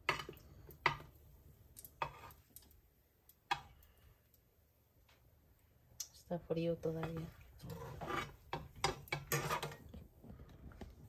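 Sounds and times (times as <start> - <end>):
sharp clicks of cookware: 1.7 - 3.9.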